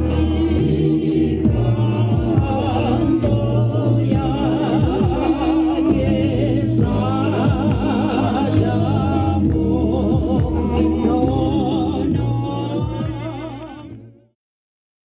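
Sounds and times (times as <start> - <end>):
person singing with vibrato: 0.0 - 14.2
sustained low accompaniment: 0.0 - 14.3.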